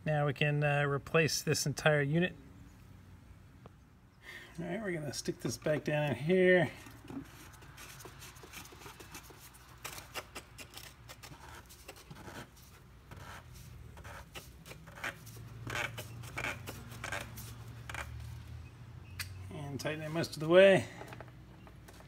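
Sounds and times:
cap threads clicking and scraping: 0:06.8 - 0:18.2.

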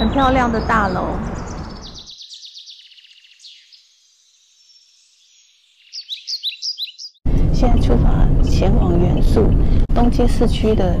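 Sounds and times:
birds chirping and trilling: 0:00.0 - 0:10.5.

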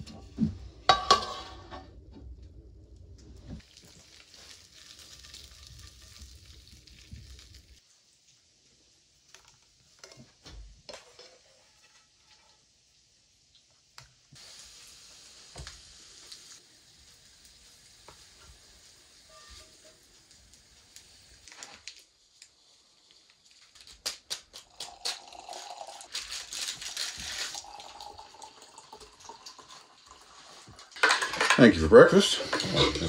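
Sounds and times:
spatula scraping frying pan: 0:00.9 - 0:01.8, 0:10.9 - 0:12.6, 0:32.3 - 0:33.0
utensils and dishes clinking: 0:00.9 - 0:01.8, 0:30.9 - 0:33.0
coffee pouring into mugs: 0:03.6 - 0:07.8, 0:24.5 - 0:33.0.

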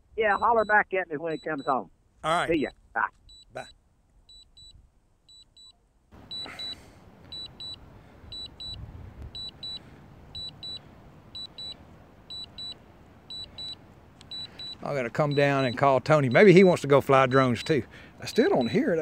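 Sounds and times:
remote controller double beeps: 0:06.3 - 0:09.8, 0:10.4 - 0:10.8, 0:11.4 - 0:16.5.

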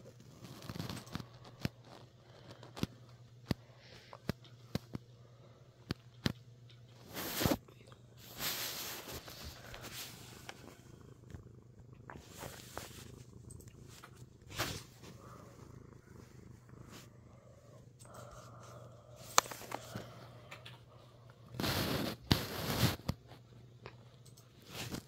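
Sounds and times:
cat purring: 0:00.0 - 0:25.0
phone rustling against fur: 0:06.9 - 0:07.6, 0:08.2 - 0:10.9, 0:12.2 - 0:17.4, 0:18.0 - 0:20.5, 0:21.6 - 0:23.4.

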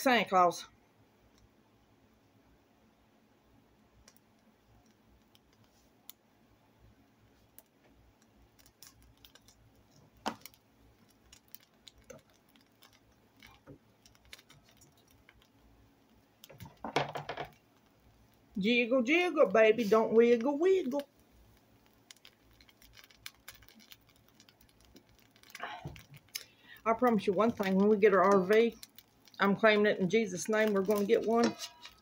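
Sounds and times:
bread toasting in butter: 0:08.7 - 0:32.0
spatula clicking on pan: 0:31.0 - 0:32.0.

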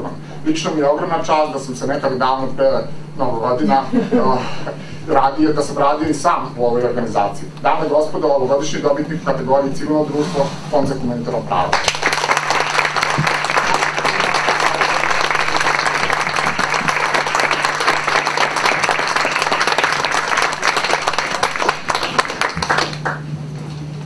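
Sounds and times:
audience applauding: 0:11.7 - 0:23.3.

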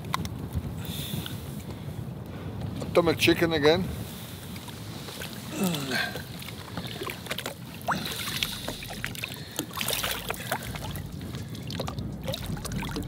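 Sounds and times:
water lapping against boat: 0:04.1 - 0:13.0
small splashes and knocks: 0:06.1 - 0:13.0.

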